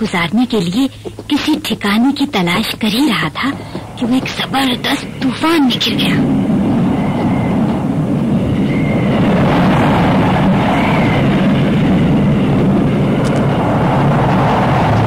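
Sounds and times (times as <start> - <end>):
wind rushing: 1.2 - 15.0
faint wind whistle: 3.7 - 15.0.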